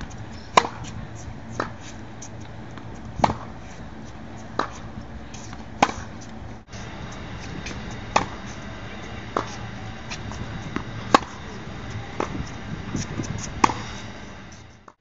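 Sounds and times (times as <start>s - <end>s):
tennis balls struck with racket: 0.0s - 1.0s, 2.7s - 3.6s, 4.5s - 14.6s
steady low hum: 0.0s - 15.0s.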